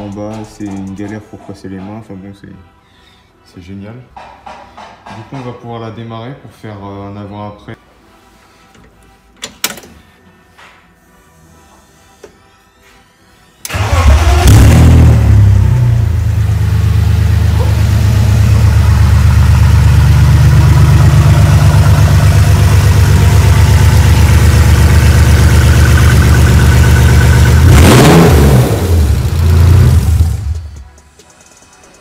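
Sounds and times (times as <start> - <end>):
car engine idling and revving: 13.7 - 31.0.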